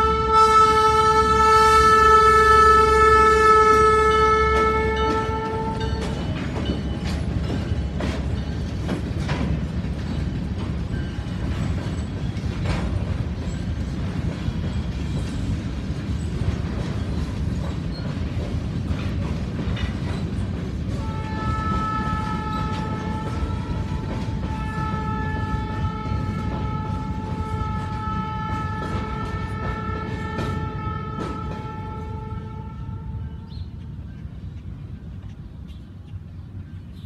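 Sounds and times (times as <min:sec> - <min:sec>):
train horn blast: 0:00.0 - 0:06.3, 0:20.9 - 0:33.7
freight train rumbling past: 0:00.0 - 0:37.0
wheels clicking over rail joints: 0:03.7 - 0:32.1.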